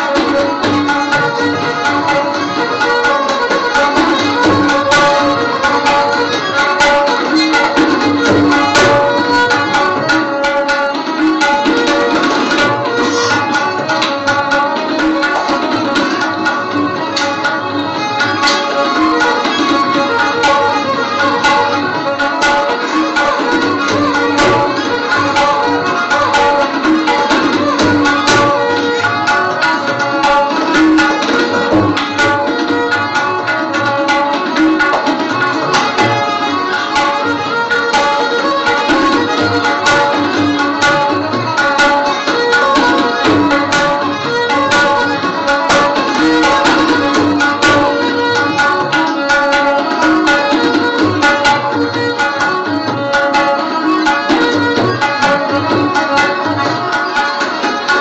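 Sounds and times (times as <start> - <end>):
plucked string melody: 0.0 - 58.0
hand drum strokes: 12.1 - 14.2.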